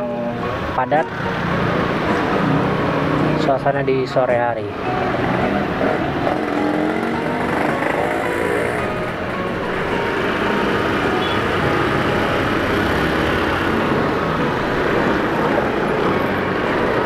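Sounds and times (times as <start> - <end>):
motorcycle engine in traffic: 0.0 - 17.0.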